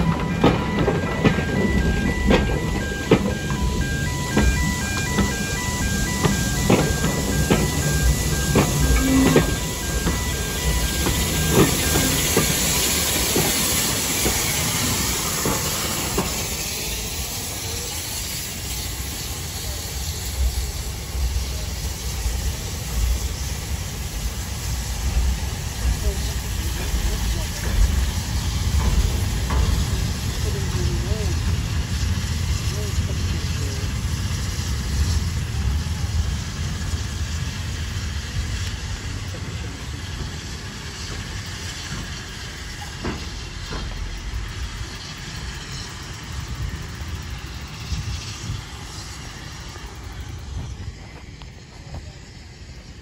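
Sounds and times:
wheel clacks over rail joints: 0.0 - 5.5
steam locomotive hissing: 0.0 - 53.0.

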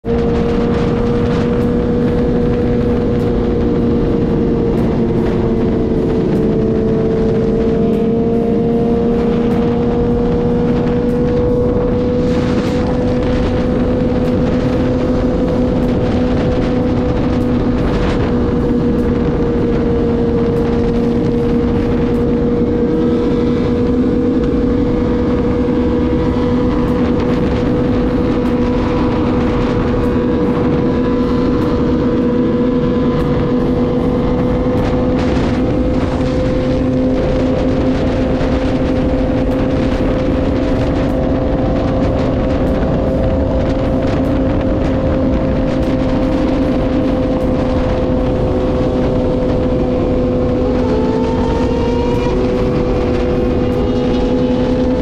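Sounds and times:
motorcycle engine droning: 0.0 - 55.0
road and wind noise: 0.0 - 55.0.

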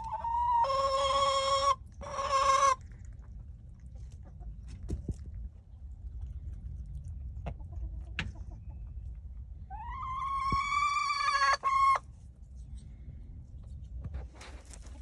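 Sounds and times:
chicken long call: 0.0 - 2.8
chickens clucking: 0.0 - 5.2, 7.1 - 12.1.

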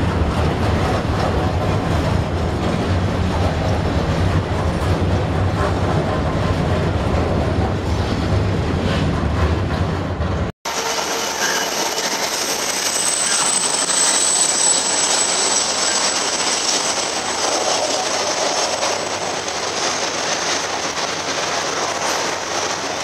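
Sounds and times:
train wheels on rails: 0.0 - 23.0
thin high-pitched whine: 10.7 - 17.9.

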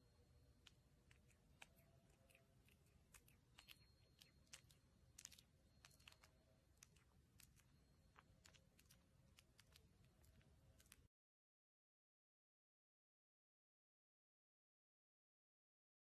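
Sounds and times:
cat licking wet clicks: 0.6 - 11.1.

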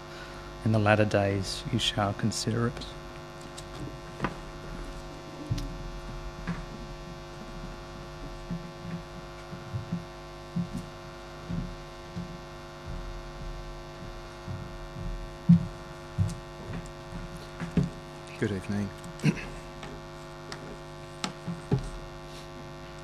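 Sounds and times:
electrical mains hum: 0.0 - 23.0
soft low knocks: 3.8 - 18.2.

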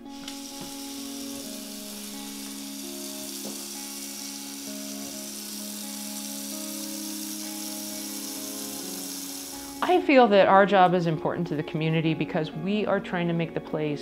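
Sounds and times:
tap running into sink: 0.0 - 4.2
music of slow held notes: 0.0 - 14.0.

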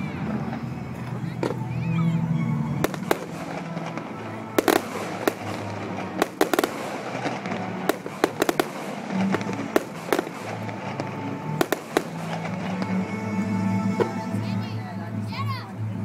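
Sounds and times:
fireworks bangs: 2.8 - 13.3
fireworks crackle: 2.8 - 13.4.

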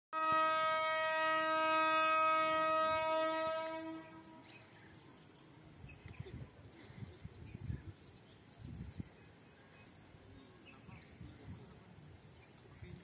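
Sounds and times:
locomotive horn blast: 0.2 - 4.5.

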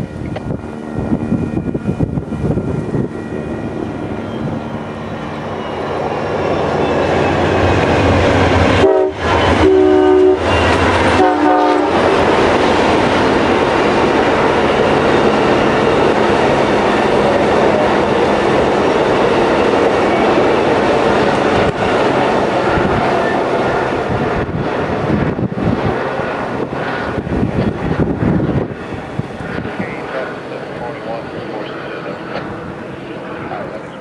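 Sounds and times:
diesel locomotive rumble: 0.0 - 34.0
train cars clickety-clack: 3.6 - 32.8
train horn blasts: 8.6 - 12.2.

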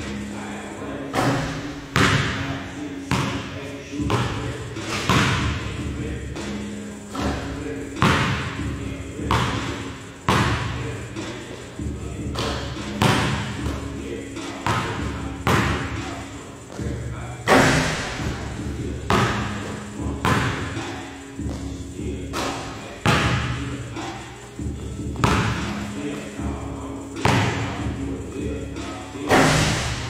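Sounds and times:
basketballs bouncing on hardwood: 1.2 - 2.5, 3.1 - 6.0, 7.2 - 10.8, 11.8 - 13.9, 14.6 - 20.8, 22.4 - 23.6, 24.6 - 25.9, 27.2 - 27.8.

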